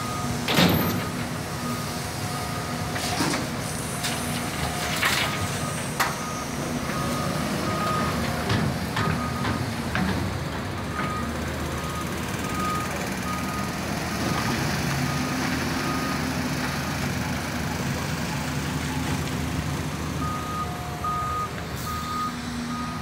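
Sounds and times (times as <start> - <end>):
heavy diesel engines running: 0.0 - 23.0
reversing beeper: 20.0 - 23.0.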